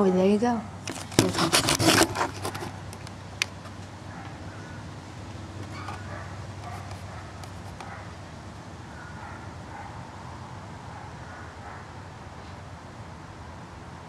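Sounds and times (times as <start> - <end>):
distant bird calls: 2.0 - 12.7.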